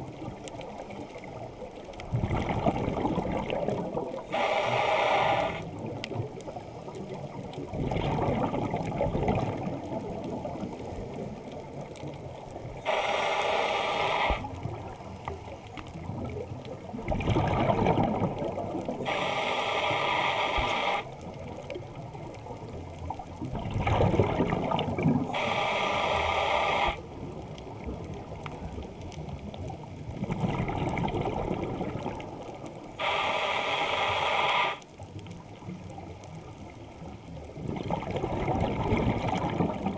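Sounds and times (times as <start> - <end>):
bubbling exhale: 2.1 - 6.0, 12.8 - 14.7, 16.2 - 21.1, 23.6 - 27.1, 33.0 - 34.8
regulator hissing inhale: 4.3 - 5.8, 12.8 - 14.6, 19.0 - 21.1, 25.3 - 27.0, 33.0 - 34.9.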